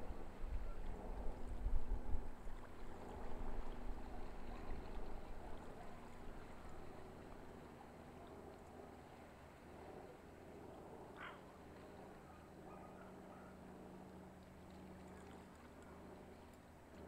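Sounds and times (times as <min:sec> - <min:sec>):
wind buffeting microphone: 0:00.0 - 0:05.6
faint steady hum: 0:00.0 - 0:17.0.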